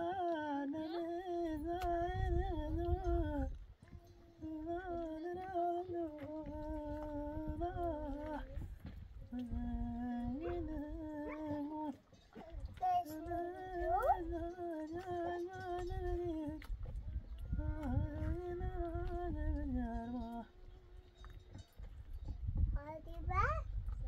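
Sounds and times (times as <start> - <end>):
person humming: 0.0 - 8.6, 12.8 - 16.7.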